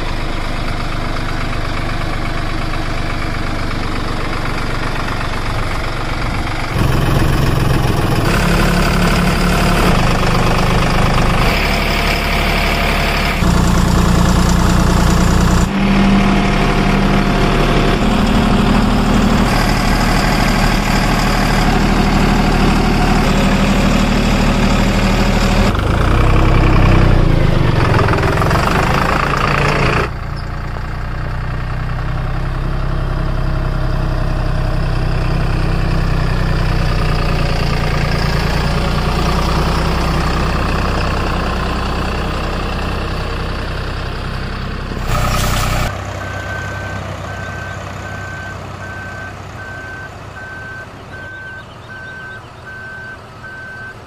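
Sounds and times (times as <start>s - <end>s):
heavy vehicle engine running: 0.0s - 54.0s
reversing beeps: 46.2s - 54.0s.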